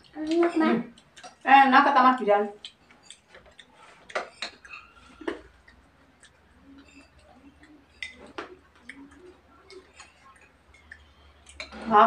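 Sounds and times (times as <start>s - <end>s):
metal spoons clinking on plates: 2.7s - 5.5s, 6.7s - 8.6s.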